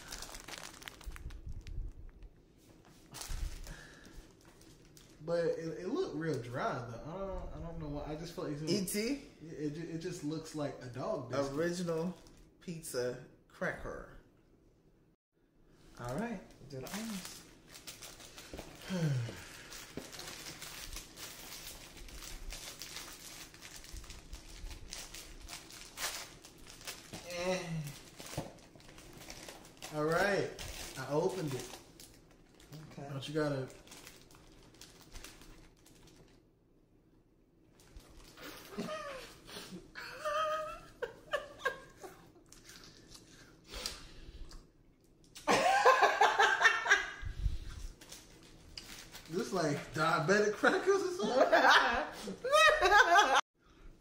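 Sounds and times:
snack wrapper crinkling: 0.0s - 2.2s, 16.0s - 36.4s, 42.4s - 45.5s, 47.9s - 49.8s
people laughing: 51.2s - 53.4s.

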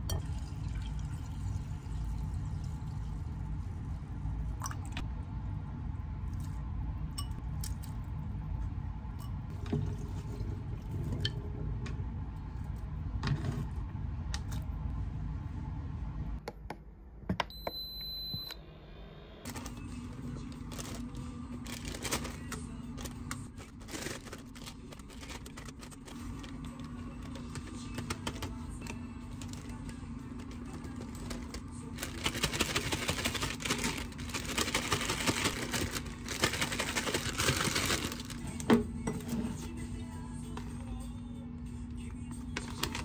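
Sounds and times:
steady low hum: 0.0s - 43.0s
plastic bags crinkling: 20.5s - 38.6s
loud dense rustling in a bag: 20.7s - 26.6s.

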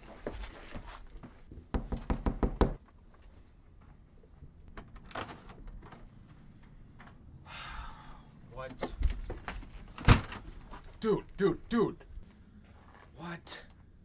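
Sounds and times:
knocking on a door: 1.7s - 2.8s.

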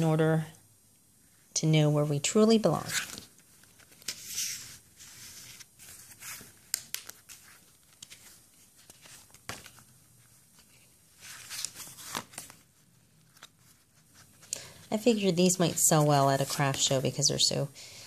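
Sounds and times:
paper rustling: 2.8s - 17.0s.

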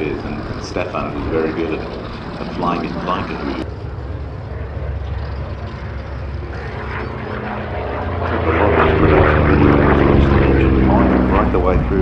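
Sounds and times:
propeller aircraft engine: 0.0s - 12.0s.

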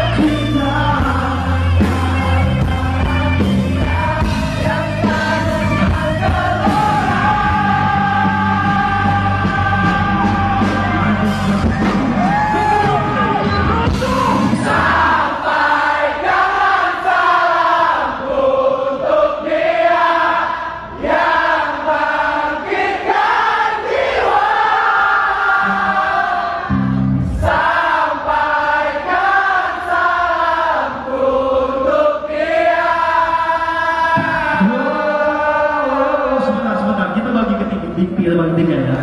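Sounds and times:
live pop-rock band: 0.0s - 17.1s
crowd singing along: 0.0s - 37.4s.

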